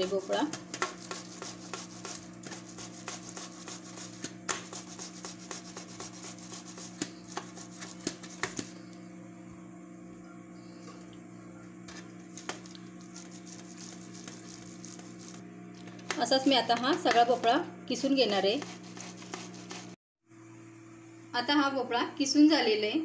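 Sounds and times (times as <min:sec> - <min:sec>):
grater scraping: 0:00.0 - 0:08.7, 0:11.9 - 0:15.4, 0:18.3 - 0:20.0
steady low hum: 0:00.0 - 0:23.0.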